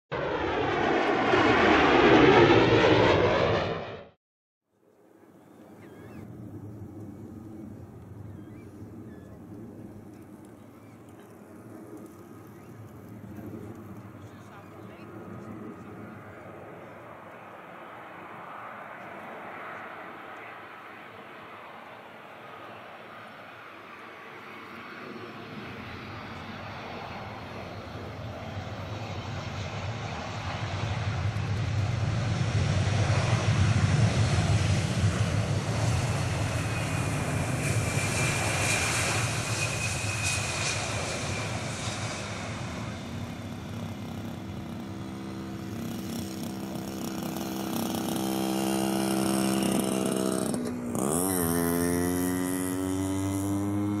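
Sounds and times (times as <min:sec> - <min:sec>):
jet engines roaring: 0:00.1 - 0:04.2, 0:05.2 - 0:54.0
jet fan whine: 0:35.4 - 0:54.0.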